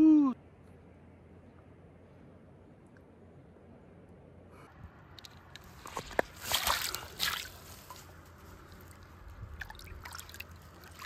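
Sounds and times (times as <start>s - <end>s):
small clicks and drips: 5.1s - 8.0s, 8.7s - 11.0s
water sloshing and splashing: 5.1s - 11.0s
loud water splashes: 5.9s - 7.6s, 9.5s - 11.0s.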